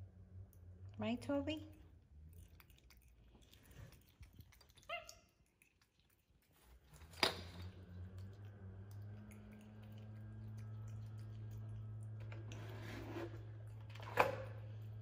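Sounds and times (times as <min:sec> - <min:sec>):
steady low hum: 0:07.6 - 0:15.0.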